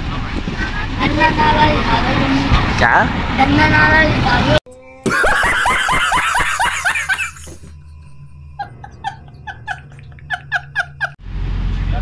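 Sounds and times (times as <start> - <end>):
man laughing hysterically: 5.0 - 7.7, 8.6 - 11.2.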